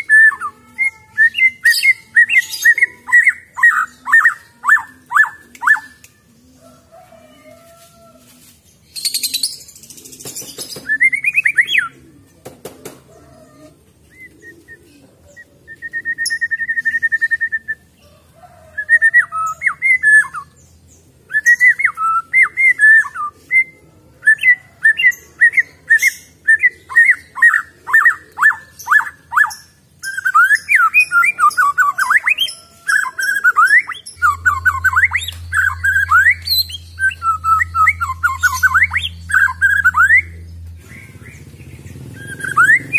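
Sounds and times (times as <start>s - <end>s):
songbird whistling: 15.7s - 17.9s, 18.8s - 20.6s, 21.3s - 41.4s, 42.1s - 42.9s.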